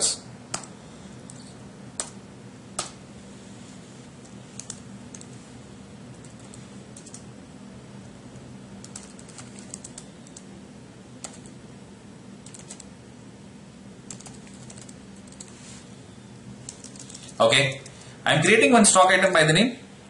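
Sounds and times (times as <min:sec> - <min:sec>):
faint low hum: 0:00.0 - 0:20.0
keyboard typing clicks: 0:00.5 - 0:01.4, 0:02.0 - 0:02.2, 0:04.2 - 0:05.3, 0:06.2 - 0:07.2, 0:08.8 - 0:10.5, 0:11.2 - 0:11.6, 0:12.4 - 0:12.9, 0:14.1 - 0:15.5, 0:16.6 - 0:17.3.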